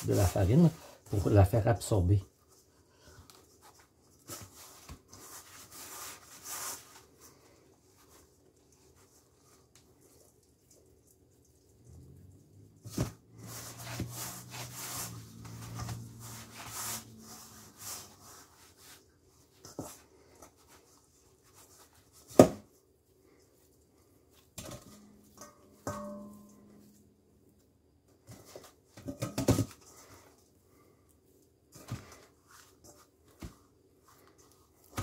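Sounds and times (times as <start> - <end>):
dough squishing against bowl: 0.0 - 27.0, 31.3 - 35.0
metal bowl ringing: 25.4 - 26.8.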